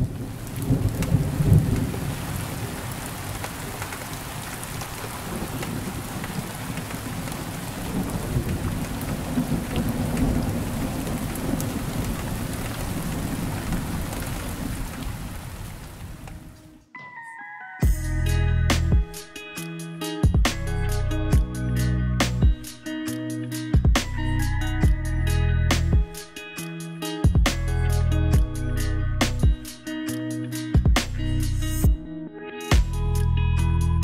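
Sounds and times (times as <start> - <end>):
low rolling thunder: 0.0 - 4.2, 4.8 - 16.2
rain pattering: 0.0 - 16.8.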